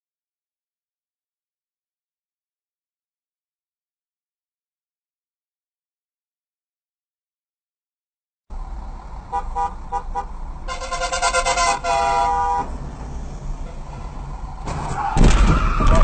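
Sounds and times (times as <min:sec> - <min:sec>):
low rumble of traffic: 0:08.5 - 0:16.0
car horn honking: 0:09.3 - 0:12.8, 0:13.6 - 0:14.2.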